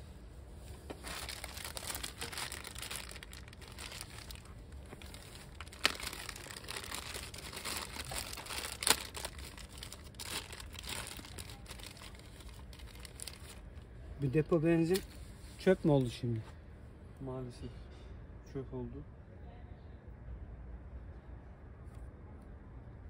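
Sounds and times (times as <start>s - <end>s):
rustling and crinkling handling: 0.4s - 16.6s.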